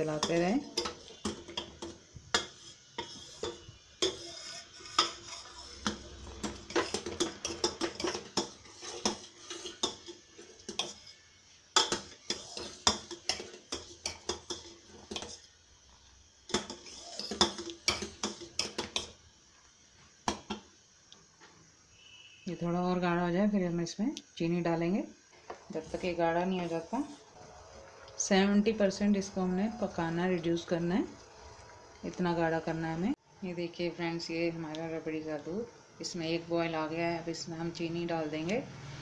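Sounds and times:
metal spoon stirring in saucepan: 0.0s - 15.6s, 16.4s - 19.2s, 25.4s - 32.2s.

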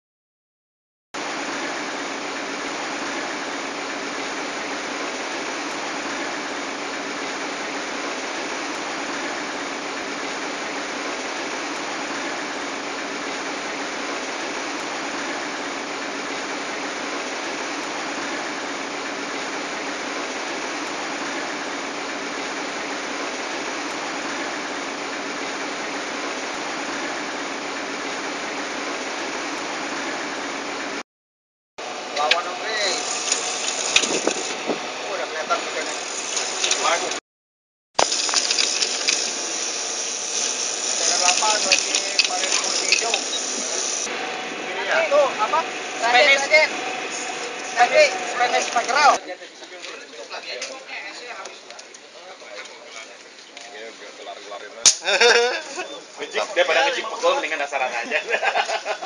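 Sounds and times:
wind and water rushing: 1.2s - 31.0s, 31.8s - 37.2s
boat engine hum: 31.8s - 37.2s, 38.0s - 49.2s.

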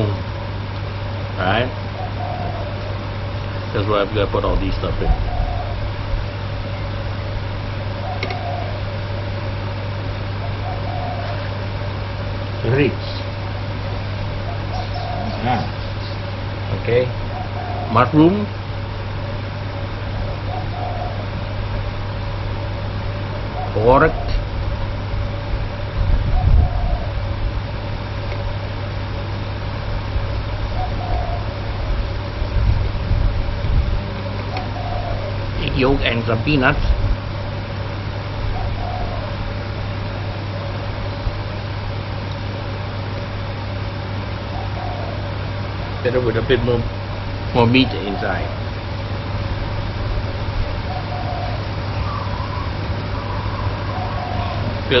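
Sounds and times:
appliance humming: 0.0s - 55.0s.

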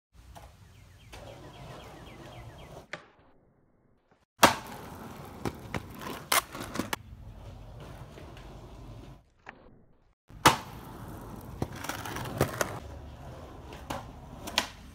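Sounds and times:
skateboard wheels rolling: 0.3s - 3.0s, 4.4s - 14.9s
skateboard landing smack: 4.4s - 5.8s, 10.3s - 10.9s, 13.9s - 14.9s
skateboard clacks: 10.3s - 12.9s, 13.5s - 14.9s.

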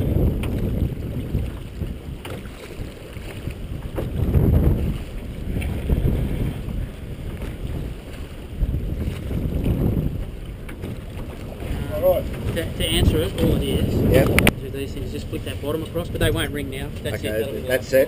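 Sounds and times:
wind rumble on microphone: 0.0s - 17.3s
oars knocking in rowlocks: 9.0s - 13.5s.

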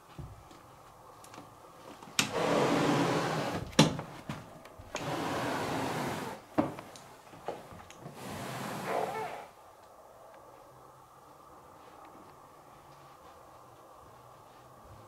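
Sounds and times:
loud rushing hiss: 8.2s - 9.6s.

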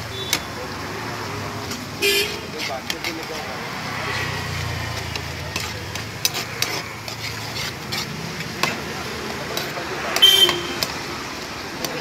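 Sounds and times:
metal spatula scraping pan: 1.6s - 11.0s
spatula clicking against pan: 4.9s - 7.2s, 11.8s - 12.0s.

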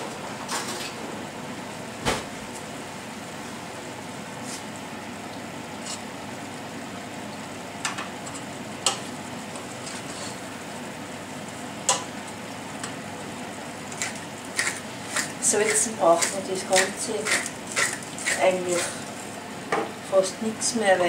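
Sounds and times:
filling sizzling in a pan: 8.2s - 19.7s.

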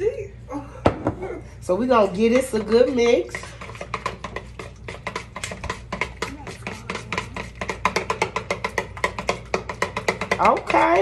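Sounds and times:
whisk clicking in plastic bowl: 2.6s - 11.0s.

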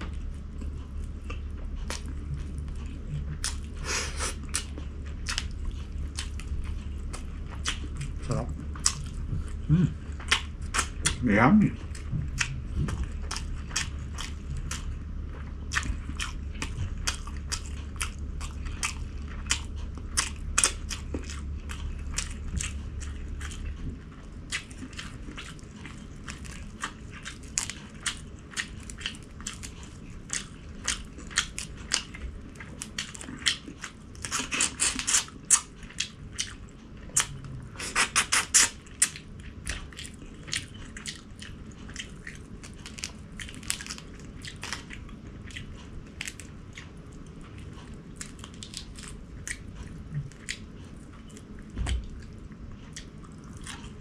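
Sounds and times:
person chewing with mouth clicks: 0.0s - 54.0s.

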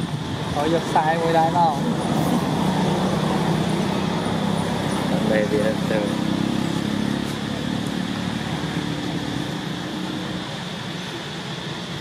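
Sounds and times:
engine humming: 0.0s - 12.0s.

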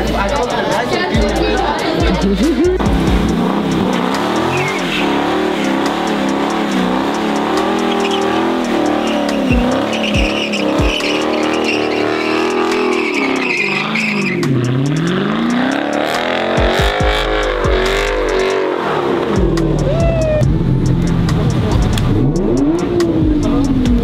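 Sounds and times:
tyres squealing: 0.0s - 18.6s
car engine revving: 0.0s - 24.0s.

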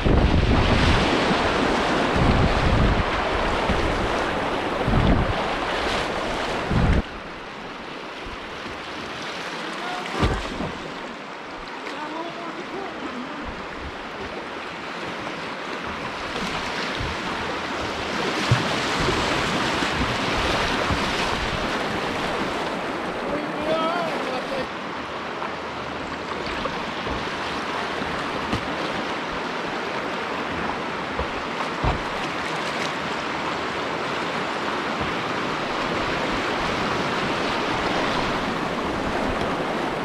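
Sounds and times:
wind buffeting microphone: 0.0s - 7.4s, 15.2s - 23.3s, 27.0s - 40.0s
river rapids rushing and splashing: 0.0s - 40.0s.

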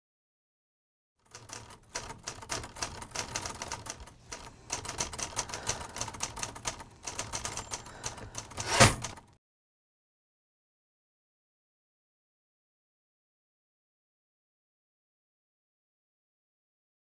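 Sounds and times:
typewriter keys striking: 1.3s - 9.3s.

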